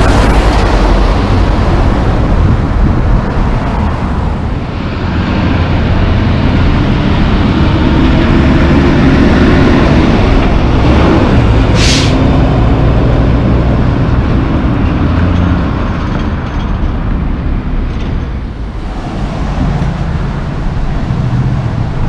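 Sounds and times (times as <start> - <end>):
truck engine rumble: 0.0 - 22.0.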